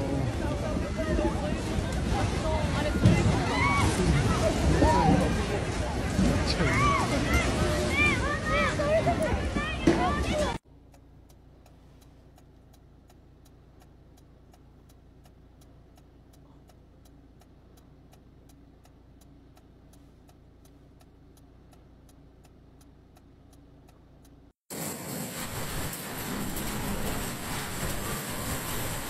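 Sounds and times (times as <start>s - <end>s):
low steady hum: 10.6s - 24.6s
faint even ticking: 10.7s - 24.6s.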